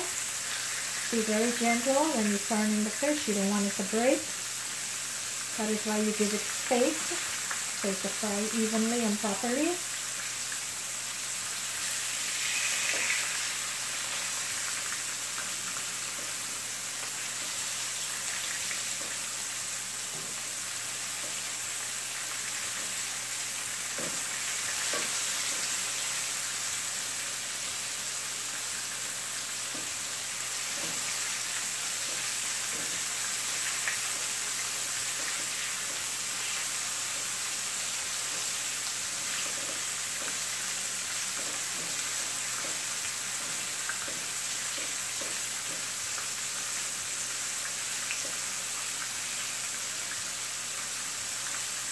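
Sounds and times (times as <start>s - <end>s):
fish sizzling in hot oil: 0.0s - 51.9s
spatula tapping and scraping pan: 30.7s - 31.1s, 32.0s - 33.1s, 41.2s - 45.9s.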